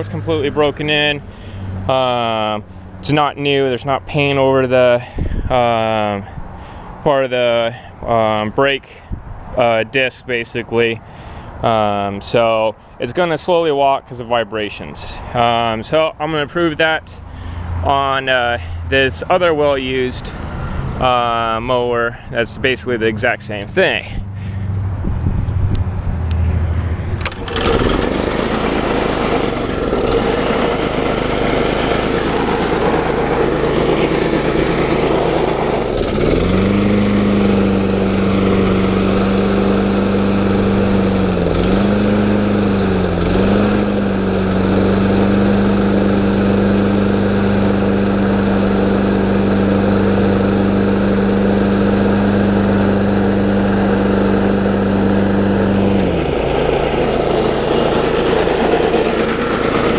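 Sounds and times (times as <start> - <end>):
lawn mower engine running: 0.0 - 4.9, 26.0 - 59.9
strong steady hum: 22.6 - 59.9.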